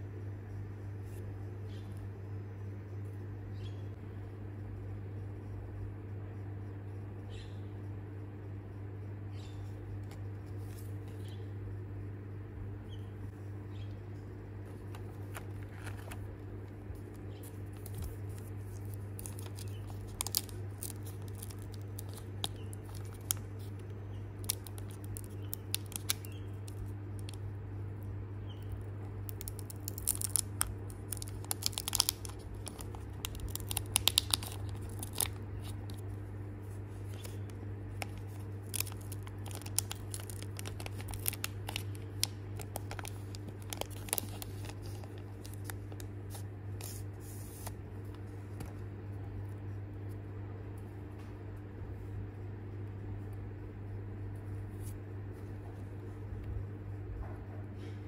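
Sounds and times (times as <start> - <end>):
steady low hum: 0.0 - 58.0
foil pack crinkling and tearing: 17.0 - 27.4, 29.2 - 36.1, 36.9 - 48.7.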